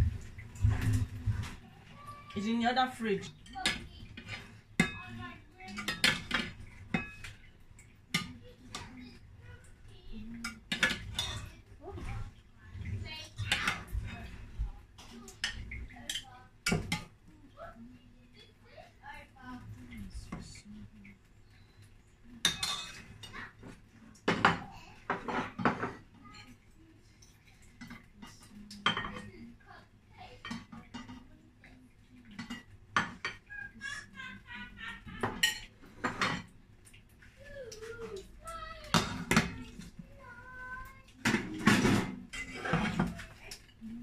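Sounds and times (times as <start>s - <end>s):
metal spoon clinking on dishes: 3.2s - 8.9s, 22.4s - 23.4s, 27.2s - 29.3s, 35.1s - 36.5s, 41.2s - 43.8s
metal spoon scraping pot: 41.2s - 43.1s.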